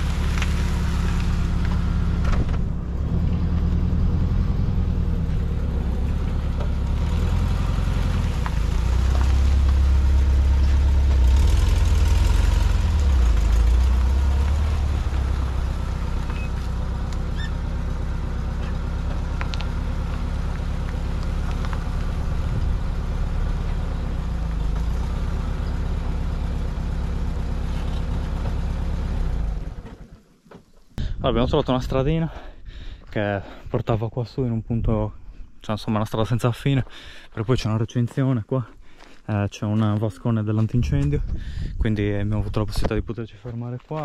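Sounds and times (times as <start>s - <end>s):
van engine running: 0.0s - 30.4s.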